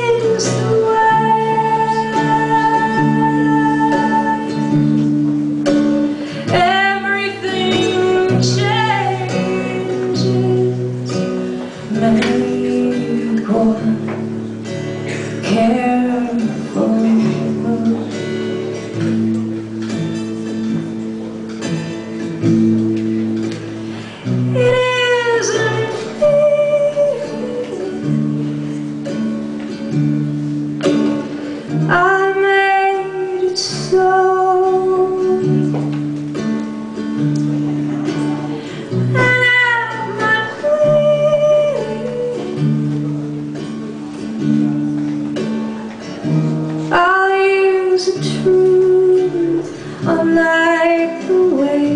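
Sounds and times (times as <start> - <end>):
woman singing: 0.0 - 19.5, 24.2 - 28.4, 30.9 - 36.1, 38.9 - 43.2, 46.2 - 51.9
acoustic guitar chords: 0.0 - 51.9.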